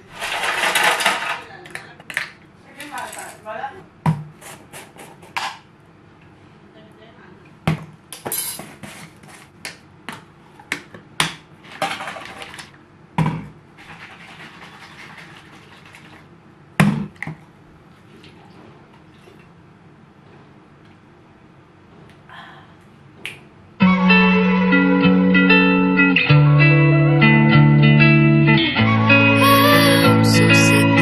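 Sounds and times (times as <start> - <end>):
water sloshing in shaken bottle: 13.8 - 16.3.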